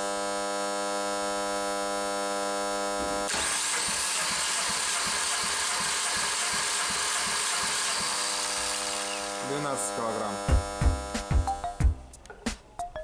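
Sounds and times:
electric hum: 0.0s - 3.3s, 8.8s - 12.3s
engine cranking whir: 3.3s - 10.0s.

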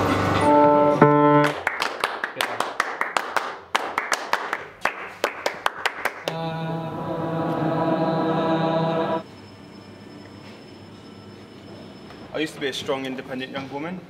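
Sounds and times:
sustained chord: 0.0s - 1.6s, 6.3s - 10.9s
sharp hand claps: 1.4s - 6.4s.

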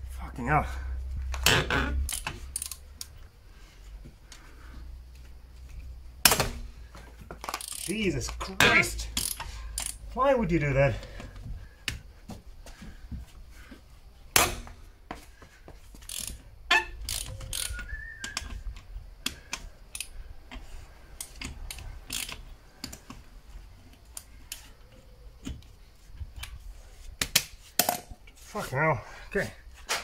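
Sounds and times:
ratchet wrench clicking: 2.0s - 3.1s, 7.4s - 8.0s, 9.0s - 10.1s, 16.0s - 23.1s.

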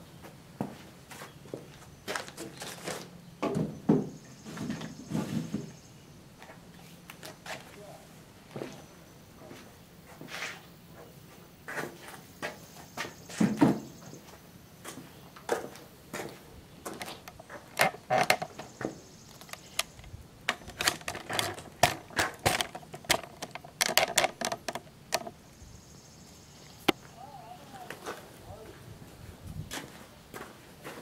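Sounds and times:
gear clattering on plastic cases: 16.9s - 25.4s.

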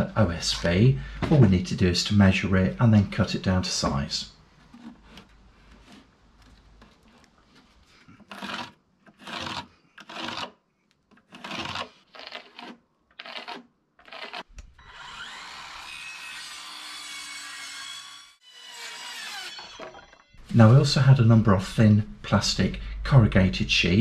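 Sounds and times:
scraping on wood board: 4.6s - 14.5s
circular saw cutting: 11.3s - 20.4s.

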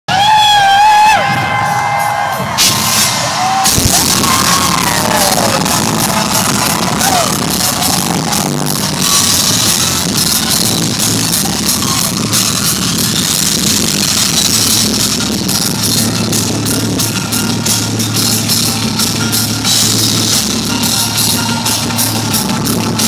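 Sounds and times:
crowd yelling and whooping: 0.1s - 17.8s, 19.6s - 23.0s
loud rock music with drums: 0.1s - 23.0s.

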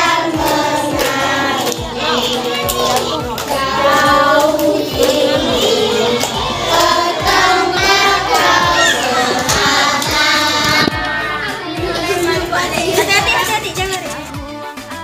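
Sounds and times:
children clapping: 0.0s - 11.0s
children singing: 0.0s - 14.6s.

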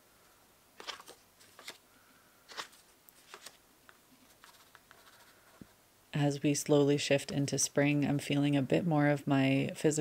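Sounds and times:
paper card rustling: 0.8s - 1.8s, 2.5s - 5.6s.

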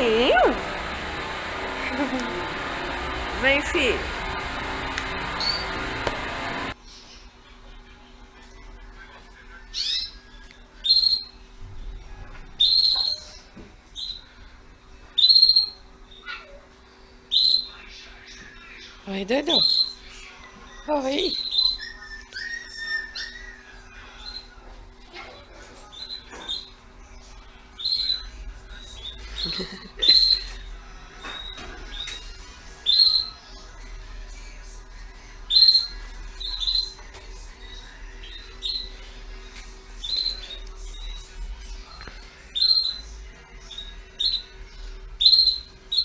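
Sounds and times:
caged birds chirping: 0.0s - 7.7s, 8.5s - 46.0s
bird whistling calls: 5.4s - 5.7s, 10.8s - 11.4s, 12.6s - 13.4s, 15.2s - 16.4s, 17.3s - 17.8s, 21.3s - 24.5s, 27.8s - 28.3s, 32.8s - 33.4s, 35.5s - 37.0s, 42.6s - 43.1s, 45.2s - 46.0s.

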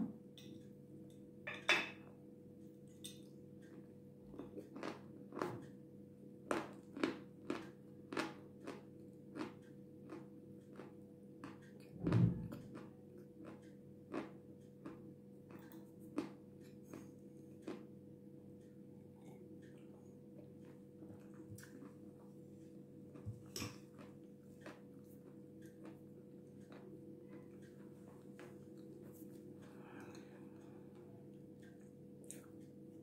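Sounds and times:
crunchy chewing: 3.7s - 5.8s, 6.5s - 11.9s, 12.6s - 18.0s, 18.7s - 32.6s.

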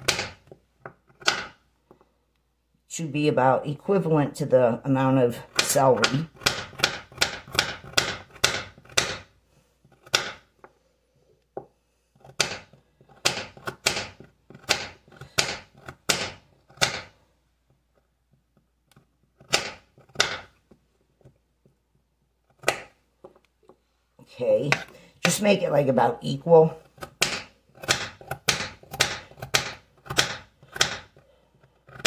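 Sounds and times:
knife chopping on countertop: 0.0s - 0.5s, 1.2s - 1.6s, 5.6s - 9.3s, 10.0s - 10.5s, 11.6s - 17.2s, 19.4s - 20.6s, 22.6s - 23.0s, 27.0s - 31.2s.

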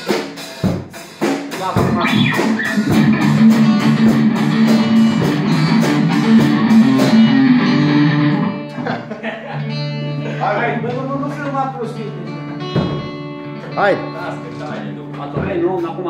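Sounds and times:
drum kit fast beat: 0.0s - 8.5s
acoustic and electric guitars: 0.0s - 16.0s
keyboard holding notes: 1.8s - 15.4s.

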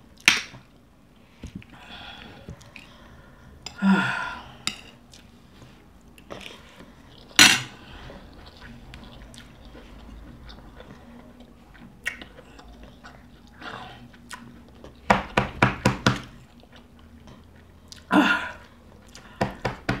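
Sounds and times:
woman gasping: 1.7s - 4.6s, 18.1s - 18.6s.

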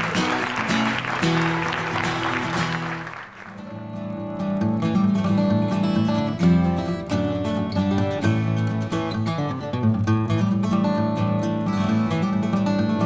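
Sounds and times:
audience applause: 0.0s - 4.3s.

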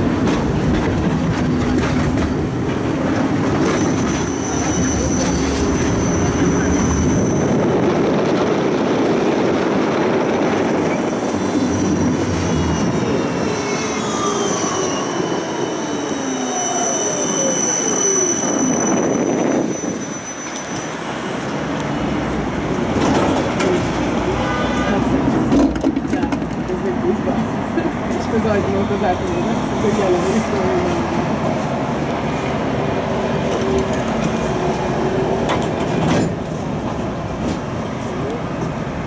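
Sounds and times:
tram rumbling on rails: 0.0s - 39.0s
high-pitched wheel squeal: 3.7s - 7.8s, 10.9s - 21.3s.

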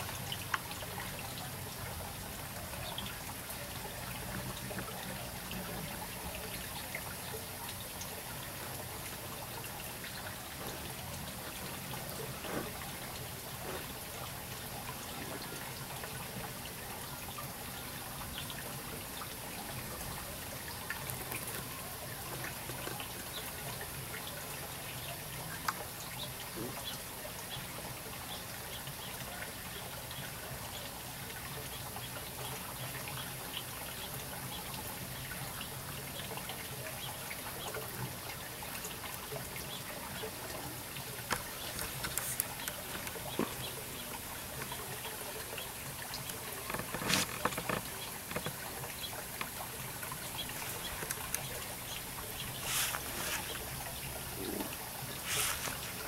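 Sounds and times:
water trickling: 0.0s - 56.0s
faint ticks: 46.1s - 53.6s.

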